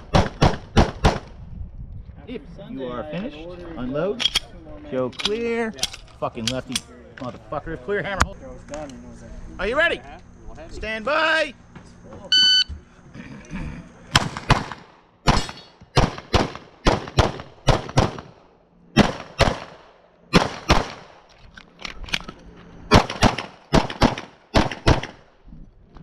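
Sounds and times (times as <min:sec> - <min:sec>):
pistol firing rapidly: 0:00.0 - 0:01.3, 0:14.1 - 0:18.4, 0:19.0 - 0:21.2, 0:22.9 - 0:25.2.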